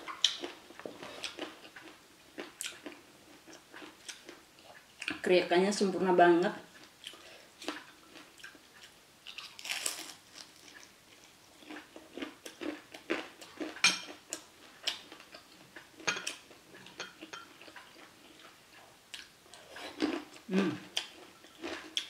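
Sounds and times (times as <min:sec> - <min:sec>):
chewing crisp food: 0:00.0 - 0:05.2, 0:06.7 - 0:22.0.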